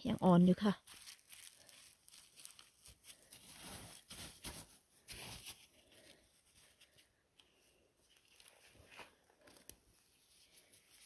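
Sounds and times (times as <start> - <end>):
rustling of forest litter: 0.2 - 6.9.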